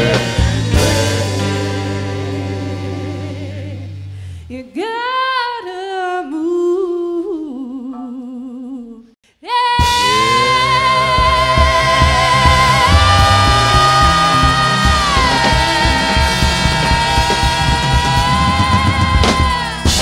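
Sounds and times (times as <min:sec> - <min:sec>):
live blues band playing: 0:00.0 - 0:04.4, 0:09.8 - 0:20.0
person singing: 0:04.6 - 0:20.0.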